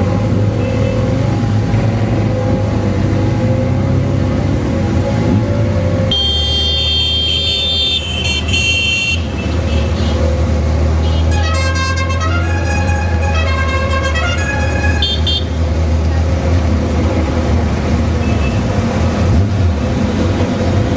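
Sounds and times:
motorcycle engines running: 0.0s - 8.5s
vehicle horns tooting: 6.1s - 10.3s, 11.0s - 15.6s.

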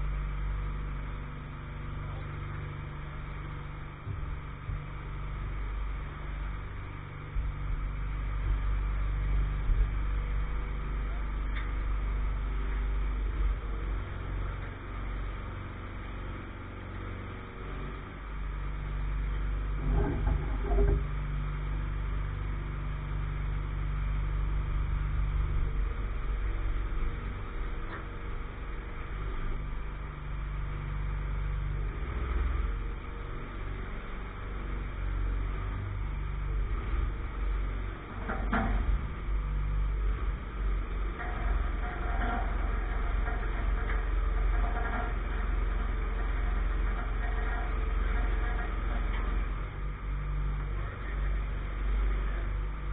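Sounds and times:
engine humming: 0.0s - 52.9s.

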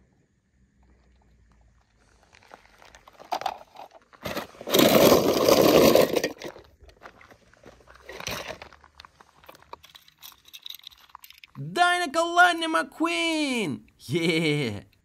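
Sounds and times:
rough crunching scraping: 2.0s - 9.8s
toy cars clicking and knocking: 9.5s - 11.6s.

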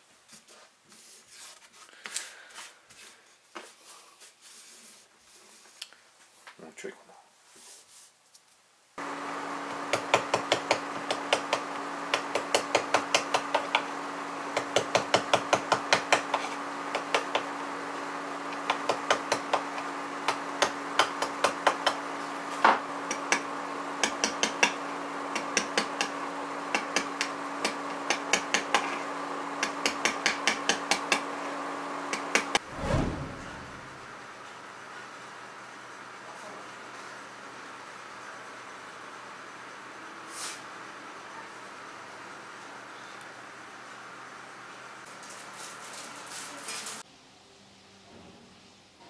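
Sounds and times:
steady low hum: 32.6s - 34.4s.

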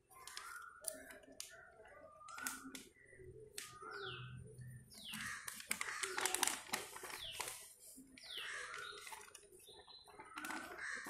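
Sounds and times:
paper booklet rustling: 5.0s - 11.0s.

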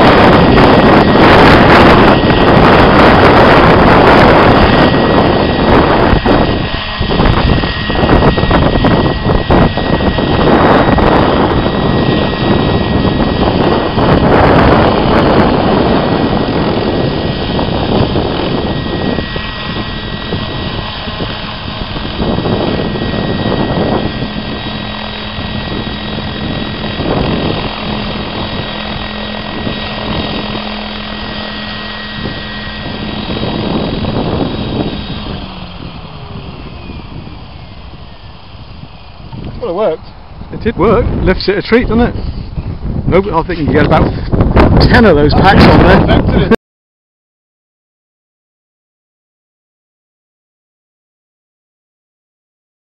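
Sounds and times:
model helicopter rotor and motor: 0.0s - 46.6s
wind buffeting on microphone: 0.0s - 46.6s.

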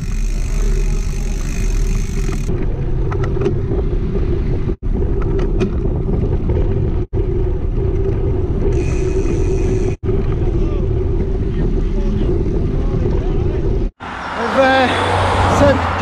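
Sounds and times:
road rumble: 0.0s - 16.0s
wind buffeting: 0.0s - 16.0s.

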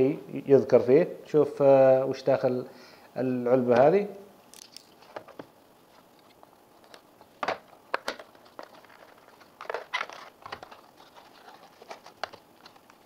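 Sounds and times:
cardboard scrapes and crinkles: 8.4s - 13.0s.

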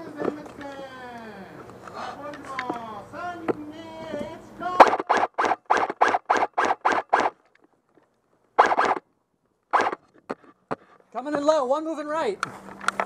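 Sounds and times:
airsoft rifle shots: 4.8s - 7.4s, 8.6s - 9.1s, 9.7s - 10.1s.

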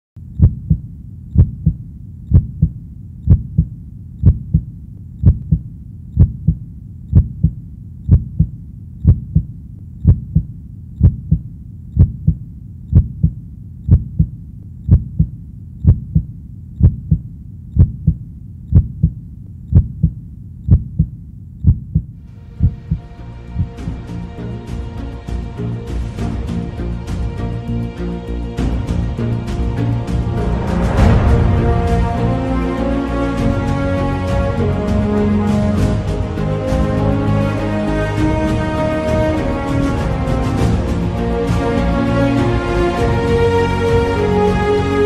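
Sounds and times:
heartbeat thumping: 0.3s - 24.0s.

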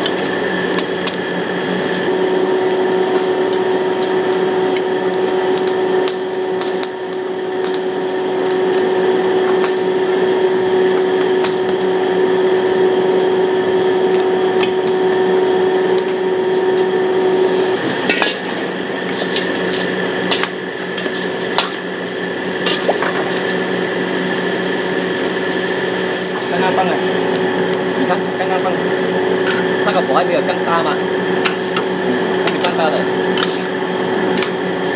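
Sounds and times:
steady hum: 0.0s - 34.9s
metal ladle scraping a wok: 17.2s - 23.7s, 33.3s - 33.7s.

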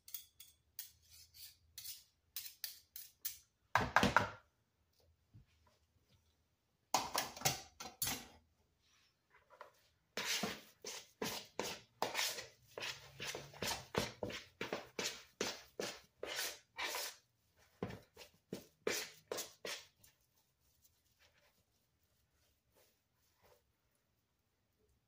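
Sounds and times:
hands kneading dough: 8.6s - 25.0s
whisk scraping plastic bowl: 10.1s - 23.6s.

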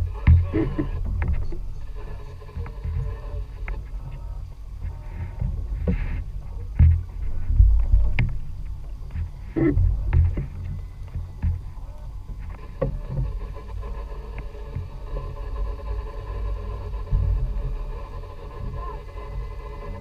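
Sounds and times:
knocks and bumps on boat: 0.0s - 13.8s
boat engine rumble: 0.0s - 20.0s.

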